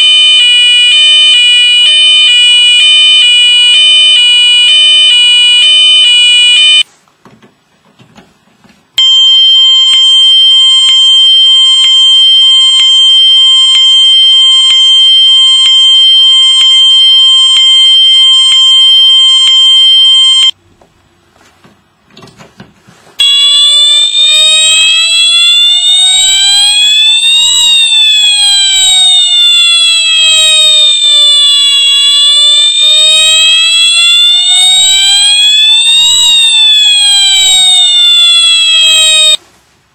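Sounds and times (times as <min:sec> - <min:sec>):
fire alarm horn tones: 0:00.0 - 0:06.9, 0:09.0 - 0:20.6, 0:23.2 - 0:39.4.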